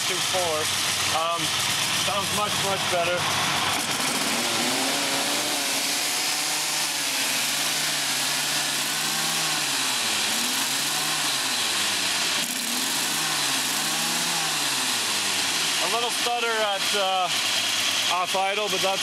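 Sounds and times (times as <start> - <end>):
car engine revving: 0.0 - 18.8.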